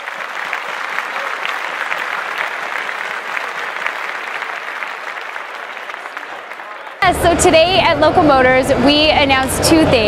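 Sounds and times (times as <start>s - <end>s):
audience applause: 0.0s - 7.3s.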